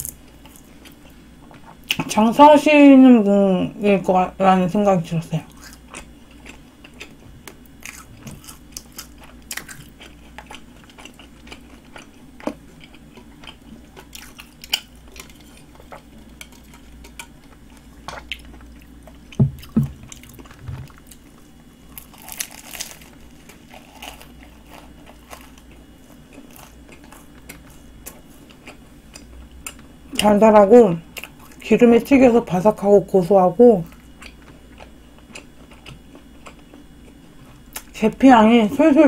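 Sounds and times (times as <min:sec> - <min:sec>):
chewing crisp pastry: 0:05.4 - 0:30.3, 0:33.8 - 0:38.0
low thumps: 0:19.4 - 0:20.9.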